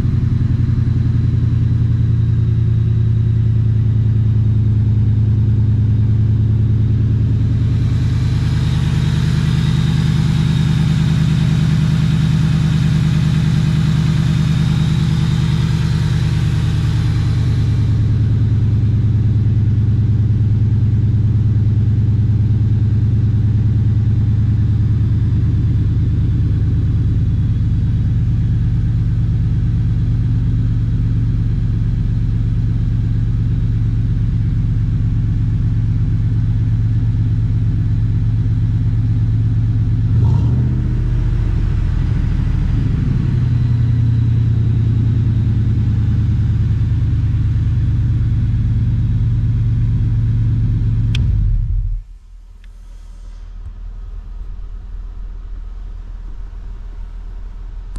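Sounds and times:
car engine idling fast: 0.0s - 57.9s
brief click: 51.1s - 51.4s, 52.6s - 53.5s.

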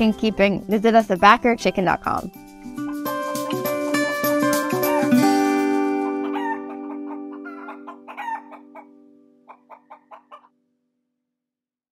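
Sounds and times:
sustained music chord: 2.7s - 9.4s
chicken clucking: 6.0s - 10.5s.

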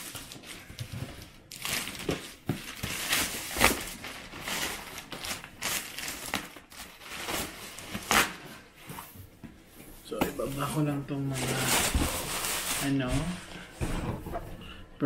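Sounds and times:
packaging crinkling and rustling: 0.0s - 8.7s, 10.4s - 13.4s.

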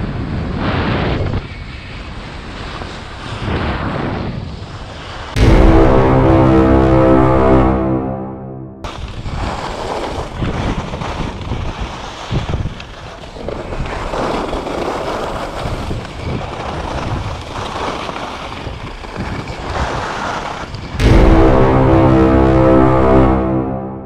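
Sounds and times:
skis scraping on snow: 0.3s - 5.3s, 8.9s - 21.0s
music: 5.4s - 8.9s, 21.0s - 24.0s
wind on microphone: 10.2s - 12.8s, 15.4s - 17.4s.

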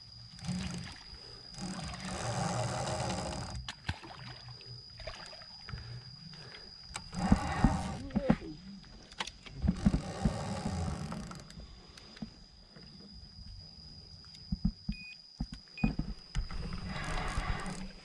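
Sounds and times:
short beeps: 14.9s - 15.2s.

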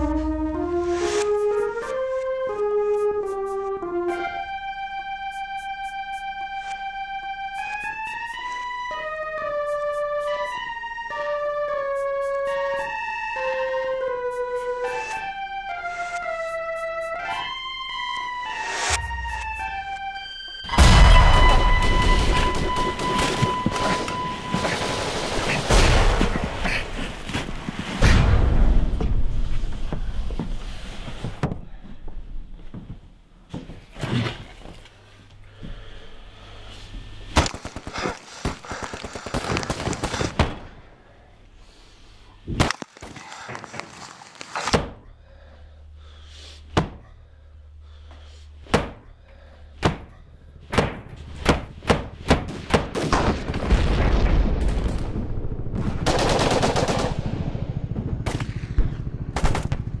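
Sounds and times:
low rumble: 56.9s - 60.0s.

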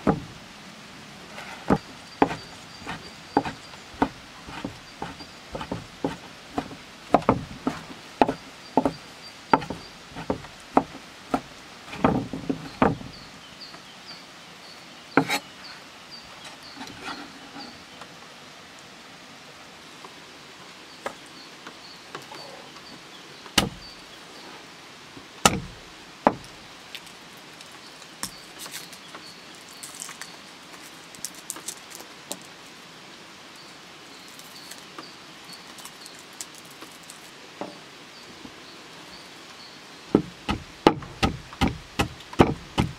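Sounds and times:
knife chopping on wooden board: 1.7s - 9.0s, 9.6s - 13.0s, 23.6s - 23.8s, 25.4s - 25.7s, 40.2s - 42.9s
knocks on board: 12.0s - 13.1s, 26.3s - 26.5s, 40.1s - 42.9s
papery crackles of garlic peeling: 26.9s - 32.8s, 34.2s - 35.0s, 35.6s - 37.4s.

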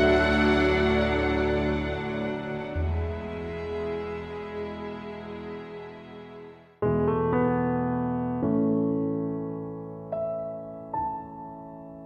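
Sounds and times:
slow calm background music: 0.0s - 7.5s.

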